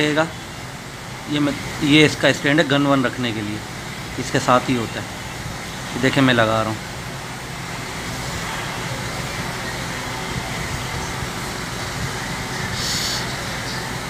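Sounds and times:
background hum and hiss: 0.0 - 14.0
brief higher hiss: 12.6 - 13.8.

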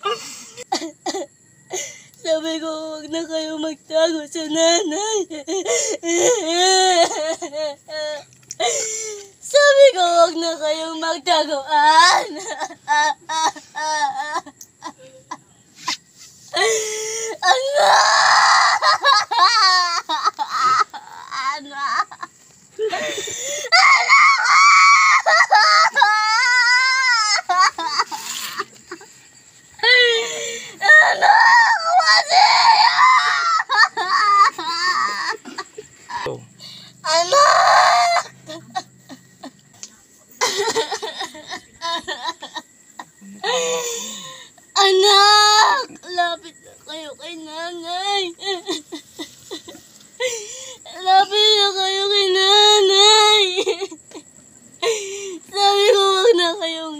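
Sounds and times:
woman wailing and sobbing: 0.0 - 15.5, 16.5 - 29.2, 29.8 - 36.4, 37.0 - 39.6, 40.4 - 54.2
woman screaming: 17.4 - 22.2, 22.9 - 28.6, 29.8 - 36.3, 37.0 - 38.9
woman laughing maniacally: 17.8 - 29.2, 32.3 - 36.4, 40.4 - 44.3.

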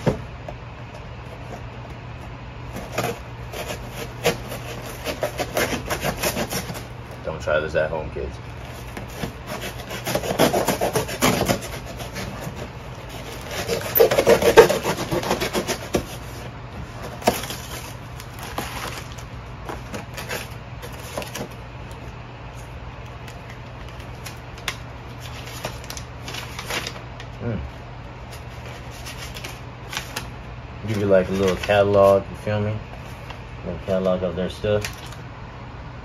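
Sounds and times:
cardboard and paper rustling: 0.0 - 7.3, 8.5 - 35.2
knife scraping cardboard box: 2.7 - 7.0, 8.6 - 21.6
knife slicing packing tape: 2.8 - 6.9, 8.7 - 16.4.

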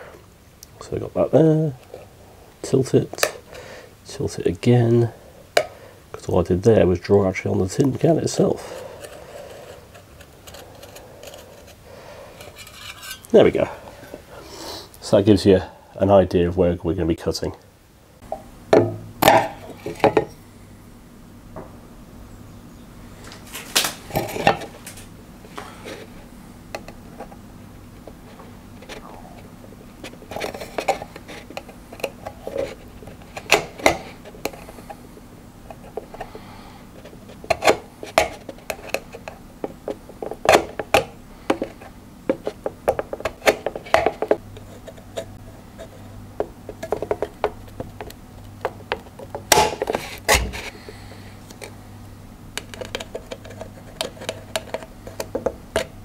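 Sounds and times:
awl punching holes in tin can: 46.8 - 50.6.

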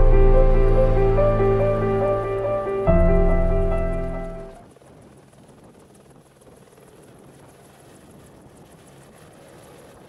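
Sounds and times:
helicopter turbine and rotor: 4.6 - 10.0.

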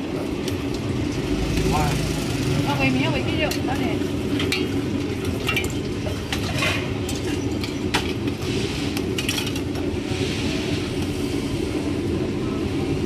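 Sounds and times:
metal utensils and bowls clinking: 2.7 - 9.9.

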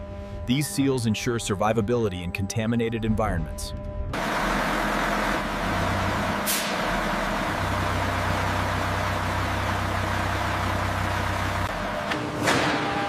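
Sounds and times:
military vehicle engine running: 4.1 - 12.1
sharp hiss of air: 6.5 - 6.8.

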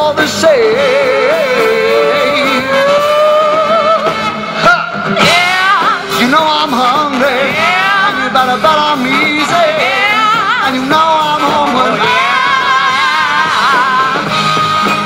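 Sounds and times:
person singing: 0.0 - 14.5
rock band playing: 0.0 - 15.0.

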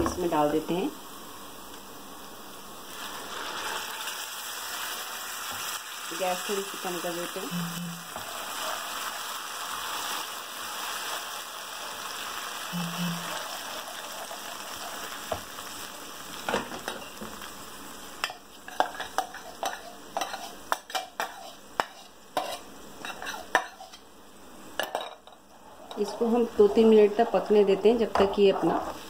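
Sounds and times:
paste sizzling in hot oil: 2.3 - 24.4.

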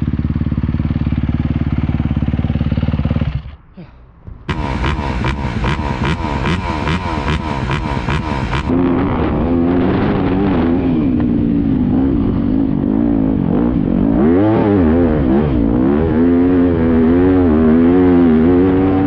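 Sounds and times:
dirt bike engine revving: 4.4 - 19.0.

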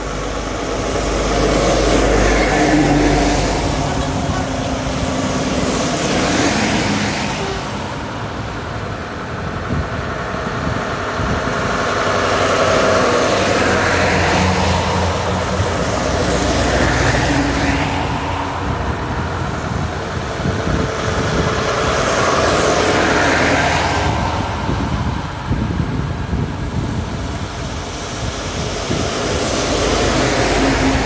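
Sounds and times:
heavy lorries driving past: 0.0 - 31.0.

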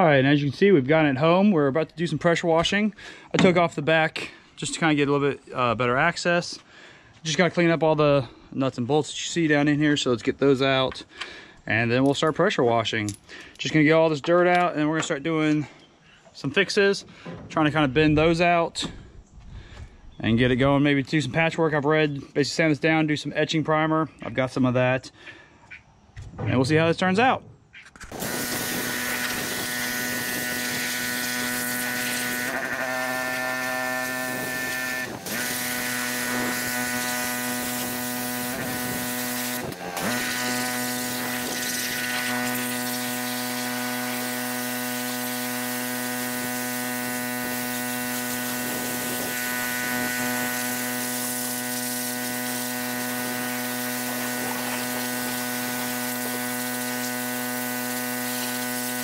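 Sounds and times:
pressure washer spraying: 28.1 - 59.0.

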